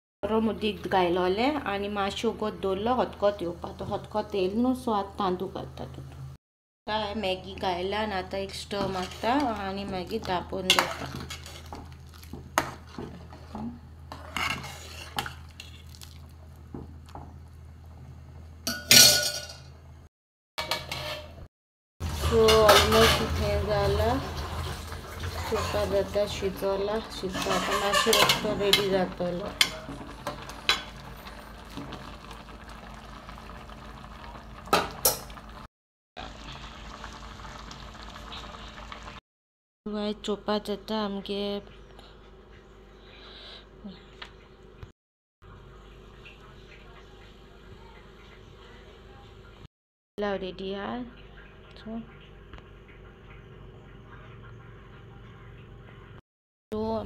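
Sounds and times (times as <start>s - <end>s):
metal ladle scraping a pot: 8.6s - 9.8s, 10.6s - 11.8s, 12.6s - 15.9s, 20.6s - 21.5s, 22.1s - 23.4s, 25.2s - 26.4s, 27.1s - 29.0s
pot of rice bubbling: 22.0s - 39.2s.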